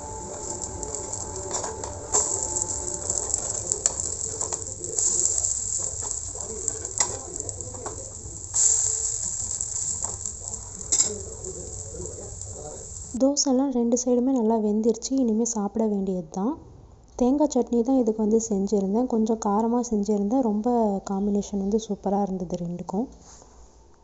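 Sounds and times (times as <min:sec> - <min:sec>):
metal spatula scraping on pan: 0:00.0 - 0:13.1
pancakes sizzling in oil: 0:00.0 - 0:13.2.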